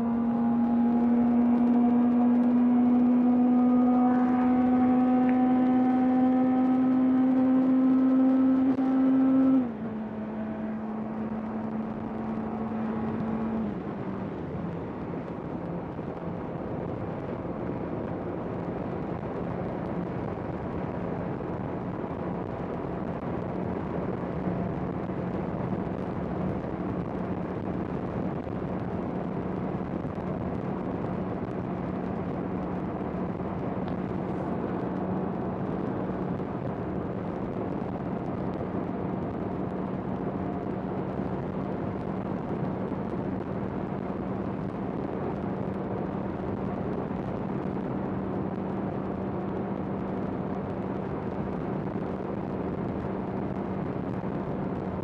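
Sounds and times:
motorcycle engine revving high: 0:00.0 - 0:14.4.

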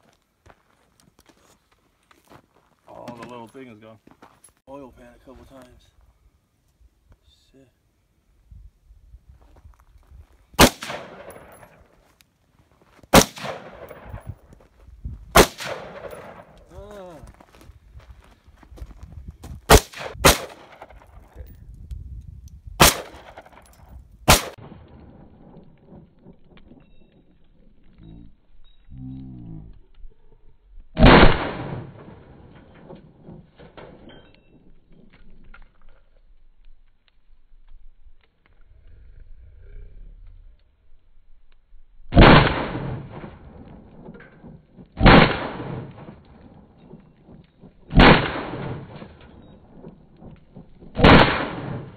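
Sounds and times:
rifle shots with echo: 0:10.6 - 0:11.9, 0:13.1 - 0:14.3, 0:15.3 - 0:16.7, 0:19.7 - 0:21.1, 0:22.8 - 0:23.7, 0:24.3 - 0:26.3, 0:31.0 - 0:34.0, 0:42.1 - 0:47.1, 0:47.8 - 0:51.9.

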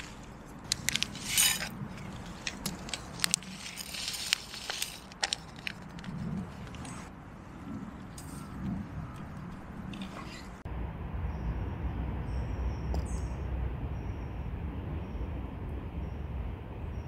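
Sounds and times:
crinkling rustle: 0:00.0 - 0:07.1.

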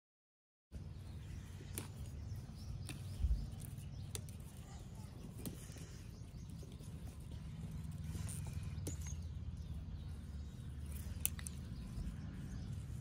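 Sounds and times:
low microphone rumble: 0:00.9 - 0:13.0
chilli stems snapping: 0:01.6 - 0:05.9, 0:10.8 - 0:12.1.

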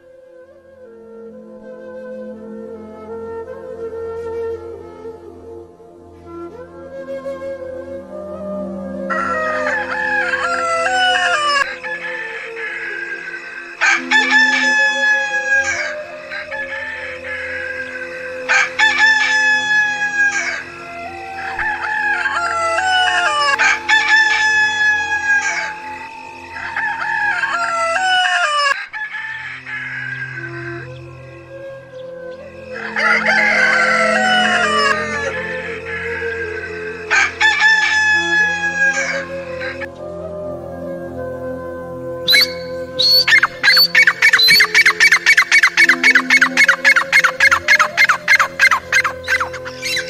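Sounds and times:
rooster crowing: 0:09.1 - 0:20.8, 0:21.4 - 0:25.9, 0:26.5 - 0:30.7, 0:32.7 - 0:39.9, 0:42.3 - 0:50.0.

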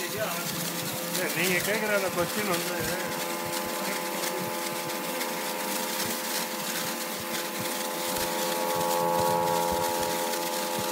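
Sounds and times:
pneumatic conveyor whining: 0:00.0 - 0:10.9
rushing air in a pipe: 0:00.0 - 0:10.9.

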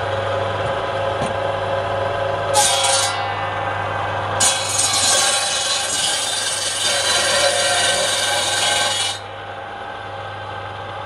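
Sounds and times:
circular saw cutting wood: 0:02.5 - 0:03.8, 0:04.4 - 0:09.3
saw motor humming: 0:02.5 - 0:10.5.

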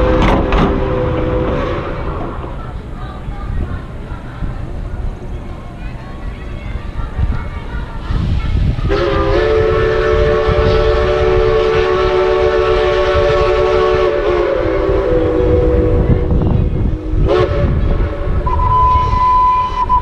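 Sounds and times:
locomotive chime whistle: 0:18.4 - 0:20.0.

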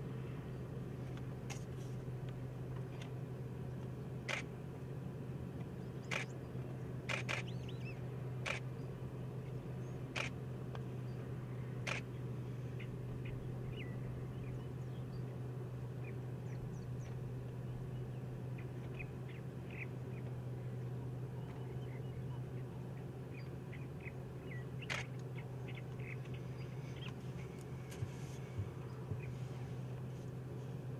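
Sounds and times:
steady low hum: 0:00.0 - 0:30.9
distant bird chirps: 0:05.8 - 0:30.0
sharp clicks: 0:06.1 - 0:06.3, 0:07.1 - 0:07.5, 0:08.4 - 0:08.7, 0:24.8 - 0:25.3.

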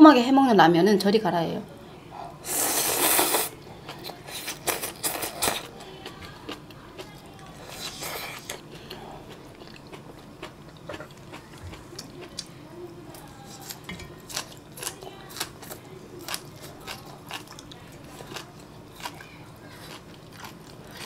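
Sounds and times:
slurping noodles: 0:02.4 - 0:03.6
crunchy chewing: 0:02.5 - 0:12.5, 0:13.1 - 0:21.0.

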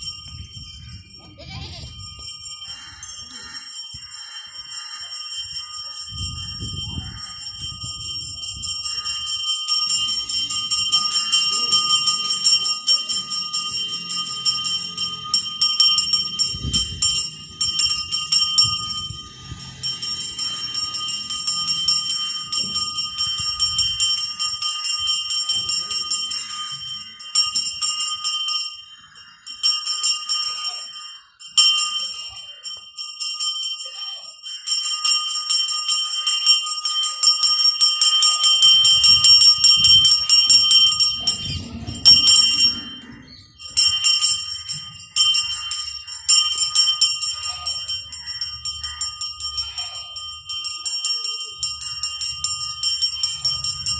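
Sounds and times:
metal bell ringing rapidly: 0:00.0 - 0:53.9
low rumble: 0:41.1 - 0:43.2.

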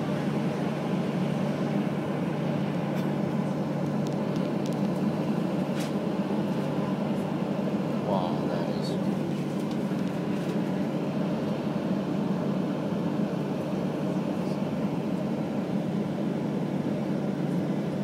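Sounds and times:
aircraft engines idling: 0:00.0 - 0:18.0
cabin air conditioning: 0:00.0 - 0:18.0.

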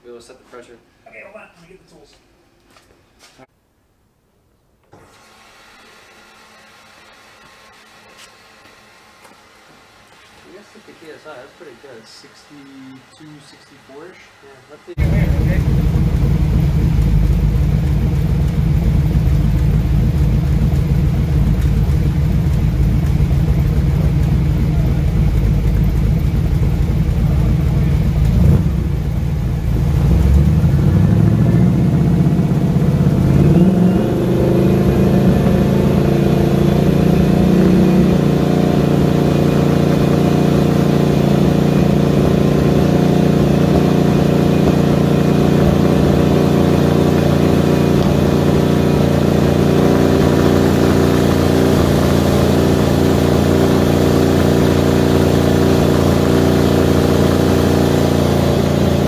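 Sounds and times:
car engine running on dyno: 0:14.9 - 0:59.0.

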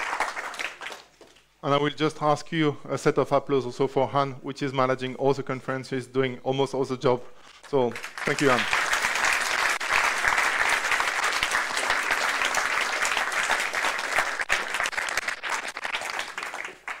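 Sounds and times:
audience applauding: 0:00.0 - 0:01.5, 0:07.6 - 0:17.0.

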